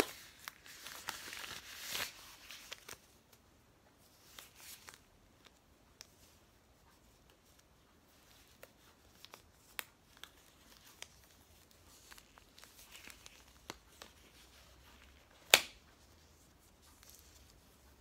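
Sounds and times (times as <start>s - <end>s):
latex glove snapping: 15.3s - 15.8s.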